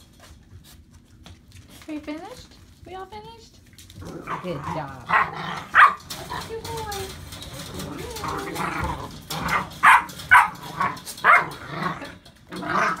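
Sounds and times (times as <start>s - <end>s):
puppies yipping and barking: 9.2s - 11.7s.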